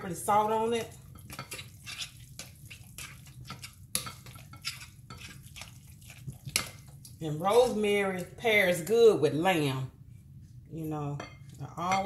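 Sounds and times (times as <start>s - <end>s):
fork scraping glass bowl: 1.2s - 6.8s.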